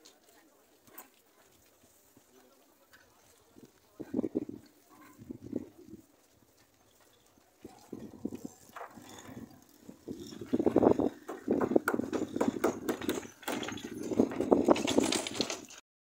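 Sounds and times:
tool knocking on wooden planks: 10.3 - 15.6.

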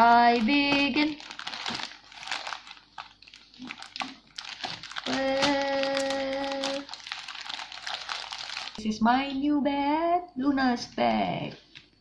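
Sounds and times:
plastic crinkling: 0.0 - 9.0.

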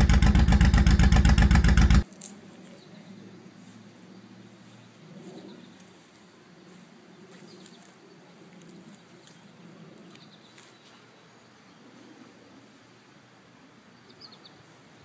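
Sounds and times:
motorcycle engine idling: 0.0 - 2.0.

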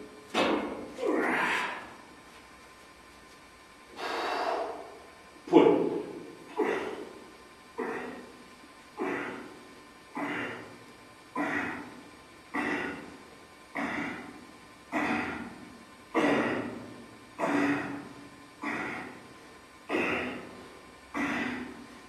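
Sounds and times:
man exhaling forcefully: 3.9 - 5.1, 18.6 - 19.2, 21.2 - 21.8.

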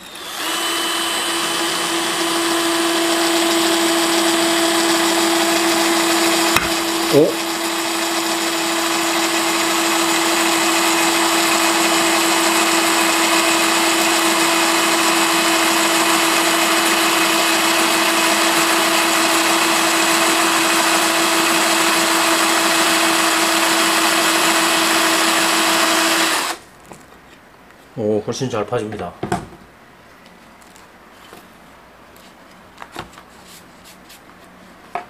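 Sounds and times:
drill grinding into ceramic tile: 0.0 - 26.6.

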